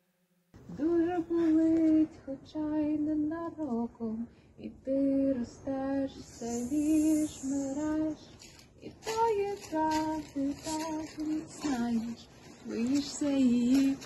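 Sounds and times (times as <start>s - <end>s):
woman singing solo: 4.9s - 8.2s.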